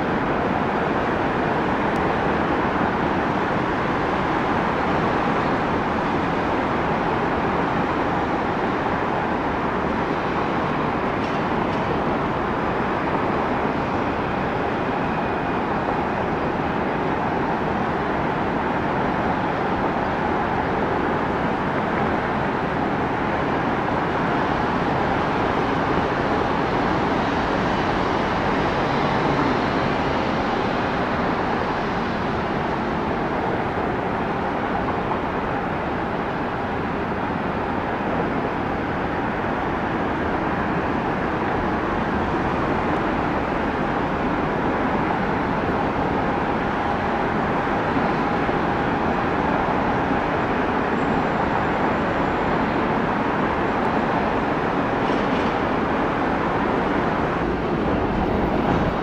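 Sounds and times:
steady engine noise: 0:00.0 - 0:59.0
faint whine: 0:42.8 - 0:59.0.

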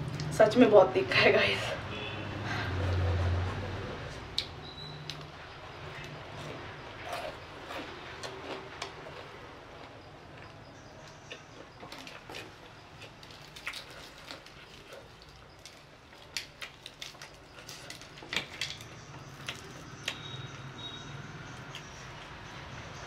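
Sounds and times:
chewing: 0:04.4 - 0:20.9
fried chicken coating crackling: 0:11.2 - 0:20.4.

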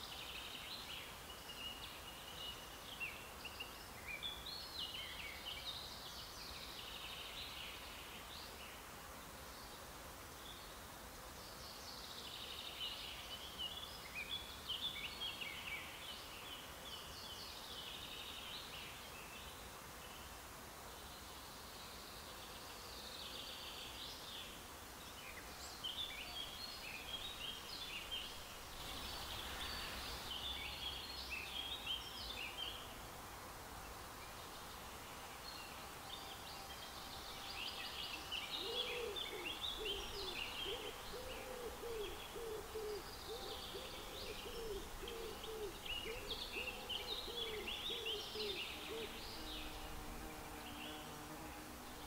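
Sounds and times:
songbirds twittering: 0:20.9 - 0:33.1, 0:33.7 - 0:52.0
low hooting bird call: 0:38.5 - 0:49.8.

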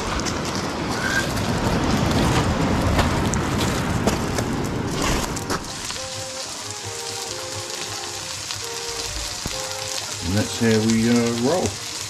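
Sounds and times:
surf washing up pebble beach: 0:00.0 - 0:12.0.

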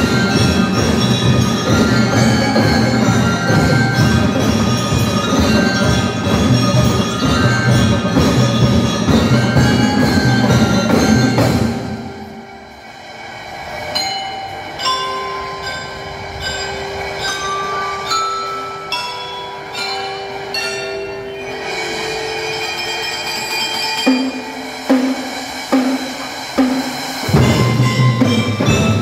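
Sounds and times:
metallophone melody with mallets: 0:00.0 - 0:12.9, 0:13.9 - 0:29.0
drum strokes: 0:00.0 - 0:14.8, 0:21.4 - 0:29.0.

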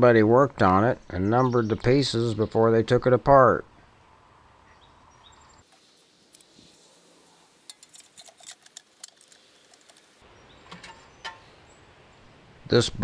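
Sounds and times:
sheet metal clicks and clinks: 0:07.7 - 0:10.1.

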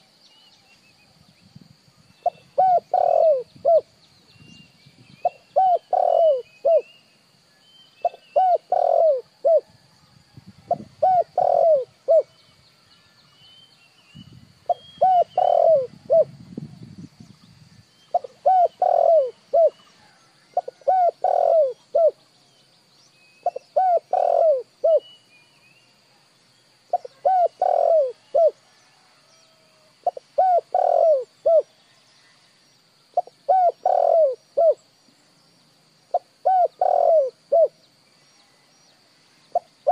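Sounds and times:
dove cooing: 0:02.2 - 0:03.9, 0:05.2 - 0:06.9, 0:08.0 - 0:09.7, 0:10.7 - 0:12.3, 0:14.7 - 0:16.4, 0:18.1 - 0:22.2, 0:23.4 - 0:25.0, 0:26.9 - 0:28.9, 0:30.0 - 0:31.7, 0:33.2 - 0:34.8, 0:36.1 - 0:37.8, 0:39.5 - 0:39.9.

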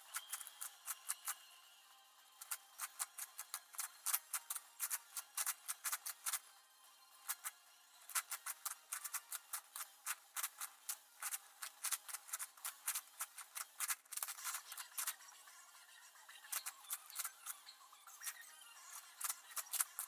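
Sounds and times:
puzzle cube clicking: 0:00.0 - 0:01.4, 0:02.4 - 0:06.4, 0:07.3 - 0:15.2, 0:16.4 - 0:17.6, 0:18.2 - 0:20.0.

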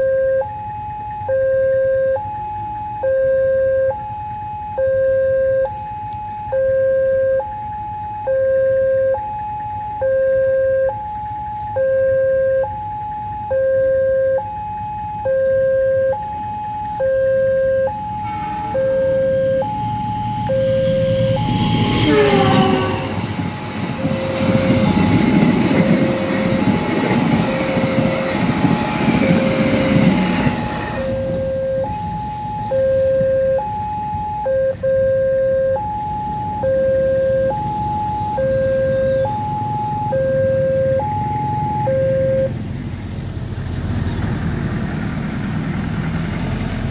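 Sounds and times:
level crossing warning alarm: 0:00.0 - 0:42.7
train passing: 0:17.6 - 0:35.0, 0:35.8 - 0:46.9.

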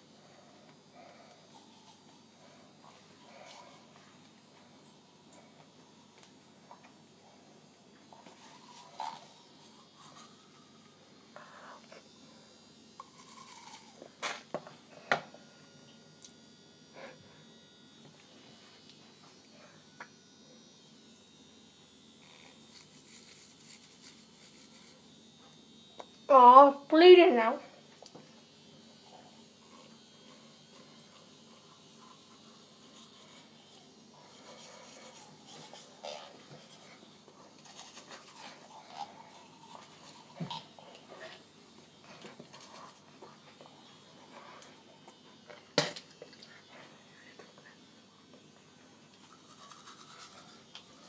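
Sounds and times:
electric toothbrush buzzing: 0:00.0 - 0:51.0.

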